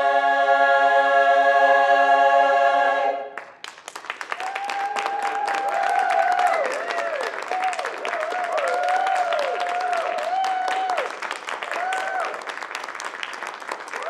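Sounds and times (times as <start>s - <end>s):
audience applauding: 3.4s - 14.0s
audience cheering: 4.1s - 14.0s.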